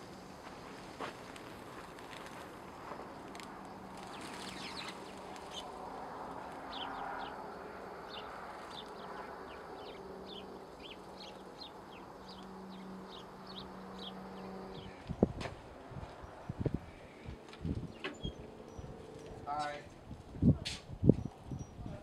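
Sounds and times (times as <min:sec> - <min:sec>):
small birds chirping: 0:02.0 - 0:15.3, 0:16.1 - 0:19.8.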